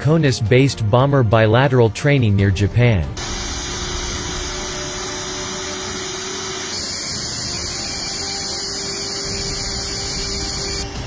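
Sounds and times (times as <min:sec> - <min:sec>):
jet engines running: 0:03.2 - 0:10.9.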